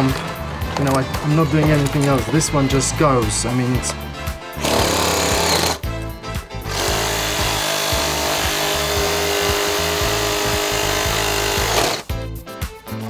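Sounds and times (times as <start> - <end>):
reciprocating saw cutting wood: 4.6 - 5.8, 6.7 - 12.1.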